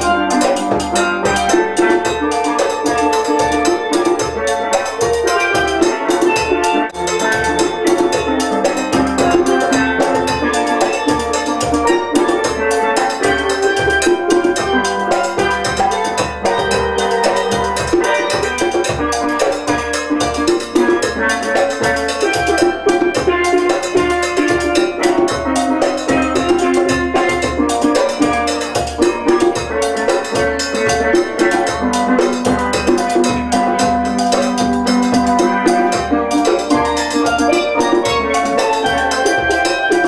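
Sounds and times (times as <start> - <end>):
steel pans struck with mallets: 0.0 - 40.0.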